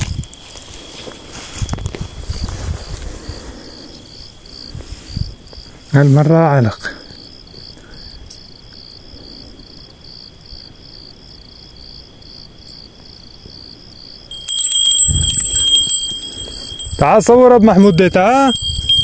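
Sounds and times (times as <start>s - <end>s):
crickets chirping: 0.0s - 19.0s
high insect tone: 0.0s - 19.0s
high metallic ringing: 14.3s - 19.0s.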